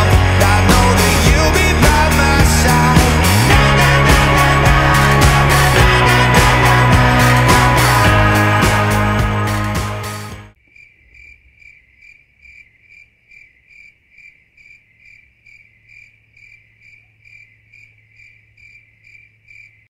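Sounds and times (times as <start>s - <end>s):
music: 0.0s - 10.6s
cricket chirping: 10.6s - 19.9s.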